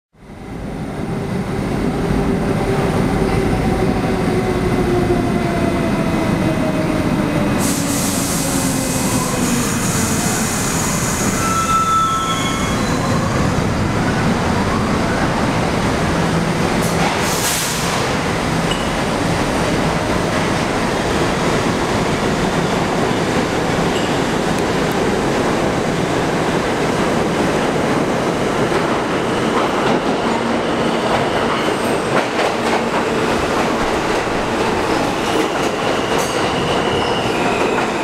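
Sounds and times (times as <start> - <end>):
subway train rumbling: 0.2 - 38.0.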